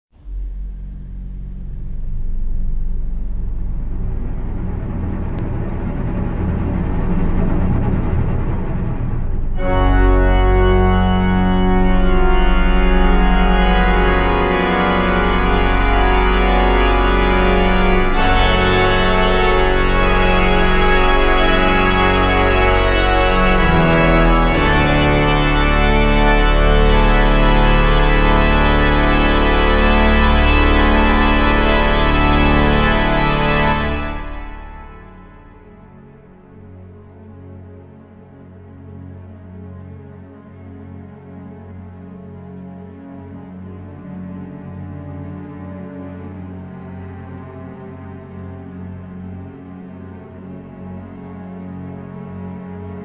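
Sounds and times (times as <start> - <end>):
slow organ chords: 8.7 - 36.9.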